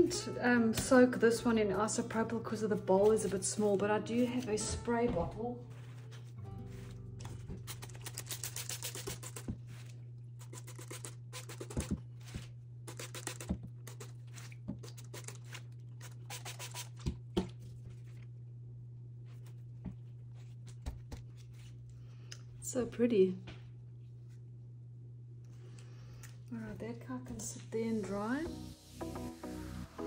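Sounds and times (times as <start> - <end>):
steady low hum: 0.0 - 29.8
spray bottle squirting: 7.7 - 9.5, 10.4 - 11.9, 12.9 - 14.1, 16.0 - 17.0.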